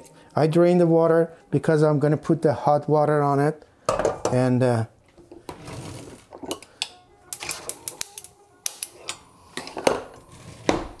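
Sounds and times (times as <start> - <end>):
gas stove igniter clicking: 7.7 - 9.2.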